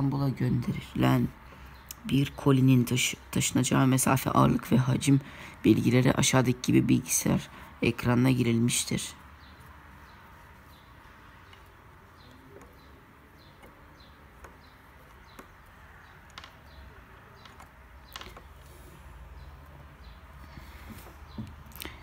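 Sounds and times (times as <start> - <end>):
faint bird chirping: 0.0 - 22.0
faint clicks: 11.4 - 19.8.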